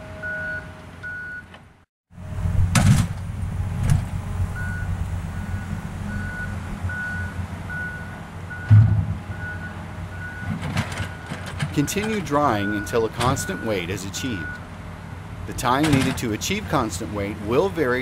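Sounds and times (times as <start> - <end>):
engine humming: 0.0 - 18.0
backup alarm beeping: 0.2 - 1.5, 4.6 - 10.5, 11.1 - 13.8, 14.4 - 14.6
loud thump: 2.6 - 4.1, 8.7 - 9.2.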